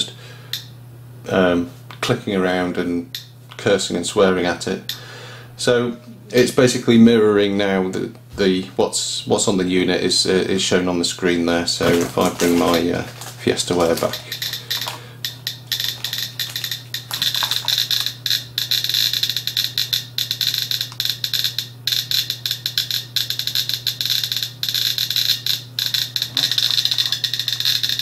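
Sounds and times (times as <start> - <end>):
geiger counter clicking: 11.8 - 28.0.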